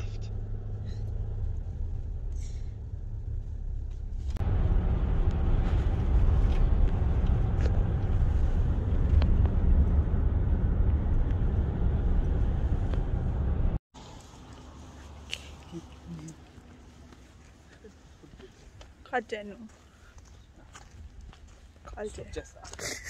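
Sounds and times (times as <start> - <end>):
car cabin road and engine noise: 0.0 - 19.6.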